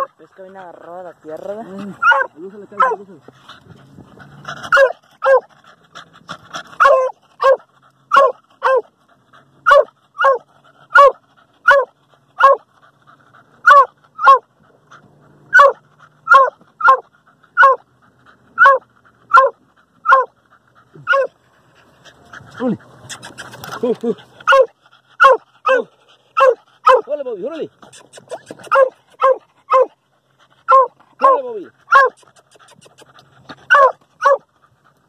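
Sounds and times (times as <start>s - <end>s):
dog barking loudly: 0.0s - 0.4s, 1.9s - 3.1s, 4.7s - 5.5s, 6.8s - 8.9s, 9.6s - 12.7s, 13.6s - 14.5s, 15.5s - 17.8s, 18.6s - 20.4s, 21.0s - 21.4s, 24.4s - 27.2s, 28.3s - 30.0s, 30.6s - 32.3s, 33.6s - 34.5s.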